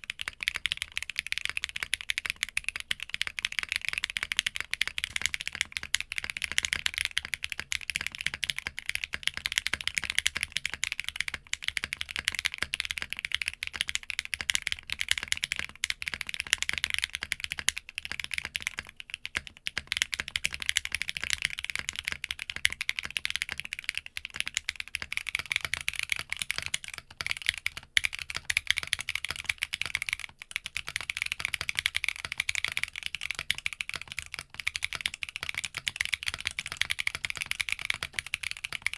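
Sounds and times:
mechanical keyboard typing: 0.0s - 38.9s.

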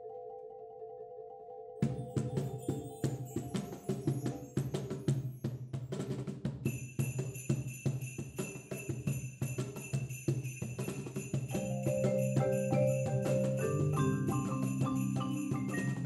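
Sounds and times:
sleigh bells shaking: 2.1s - 5.7s, 6.6s - 16.0s
cajon beat: 10.4s - 16.0s
marimba low notes: 11.6s - 16.0s.

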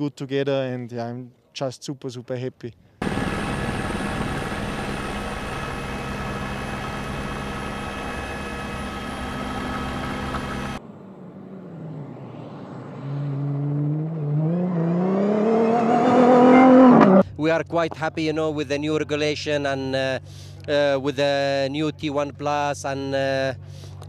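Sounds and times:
helicopter rotor and turbine: 3.0s - 13.1s
truck engine accelerating: 3.0s - 24.0s.

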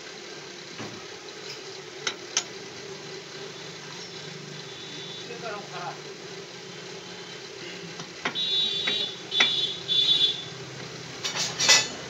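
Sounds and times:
metal clinking and scraping: 11.2s - 12.0s.

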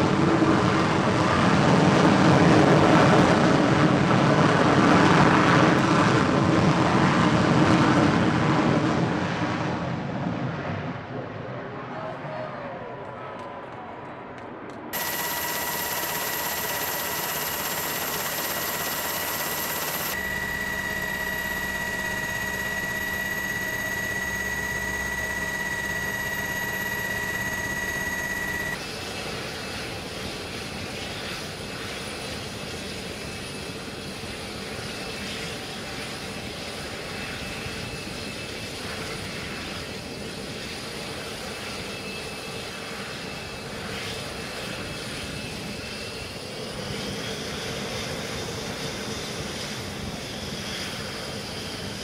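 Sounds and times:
jet engine turbine whine: 15.0s - 52.0s.

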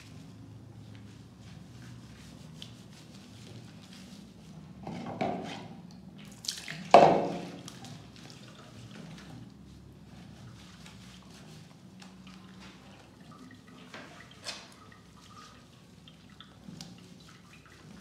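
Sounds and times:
water dripping in a sink: 12.0s - 18.0s.

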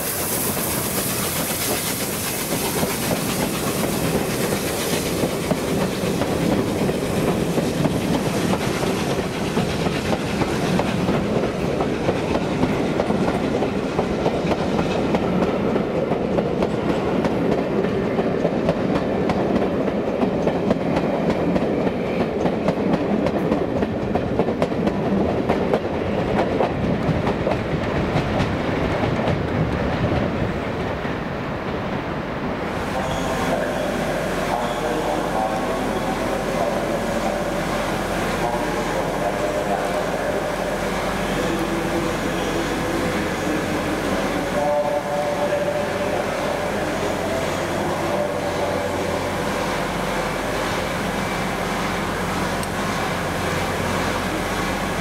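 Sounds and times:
steam locomotive hiss: 0.0s - 15.9s, 32.7s - 55.0s
train wheels clattering over rail joints: 0.5s - 30.4s.

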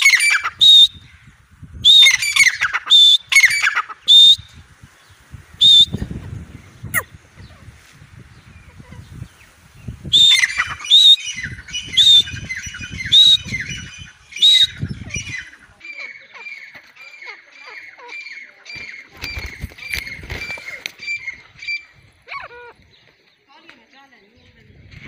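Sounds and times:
francolin shrill calls: 0.0s - 4.5s, 10.0s - 22.8s.

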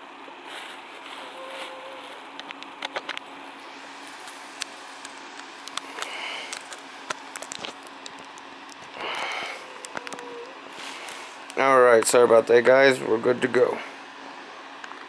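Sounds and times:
faint steady hum: 0.0s - 15.0s
short rustle: 0.4s - 2.4s
small clicks and knocks: 4.6s - 10.6s.

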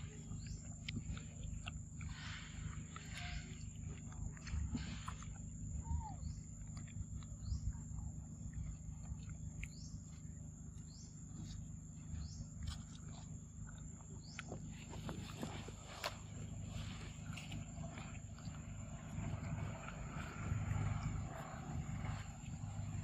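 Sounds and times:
high-pitched hum: 0.0s - 23.0s
monkey chewing fruit: 0.0s - 23.0s
low wind rumble: 14.7s - 23.0s.

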